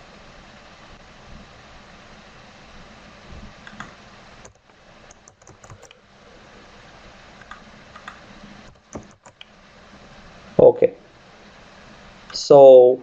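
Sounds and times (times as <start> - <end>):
steady background hiss: 0.0 - 13.0
keyboard keystrokes: 3.6 - 6.0, 7.4 - 9.5.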